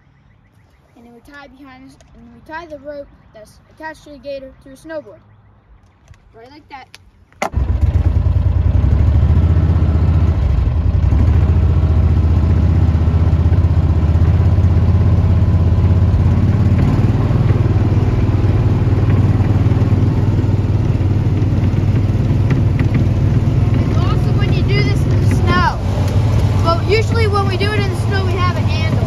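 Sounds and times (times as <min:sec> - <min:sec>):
utility vehicle engine running: 0:07.4 - 0:29.0.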